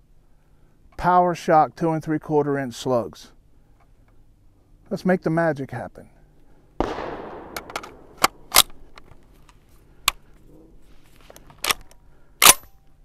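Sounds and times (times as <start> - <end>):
shotgun loading clicks and clacks: 7.3 - 10.4, 11.2 - 12.9.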